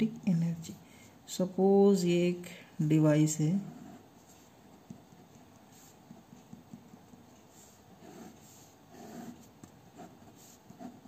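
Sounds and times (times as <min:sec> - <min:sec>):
pen scratching on paper: 0:03.6 - 0:11.0.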